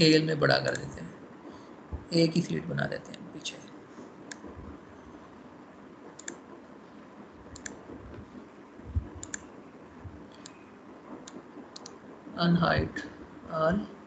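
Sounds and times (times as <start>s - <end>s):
faint steady hiss: 0.0s - 14.0s
computer mouse clicking: 6.2s - 6.4s, 7.5s - 8.2s, 8.9s - 9.5s, 10.3s - 10.6s, 11.2s - 12.0s.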